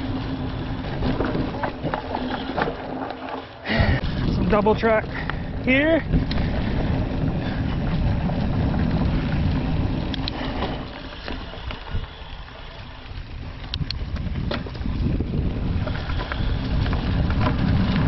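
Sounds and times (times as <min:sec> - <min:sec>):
bike clicks and rattles: 0:00.0 - 0:18.0
bike tyres rumbling on dirt: 0:00.0 - 0:18.0
wind on microphone: 0:03.8 - 0:18.0.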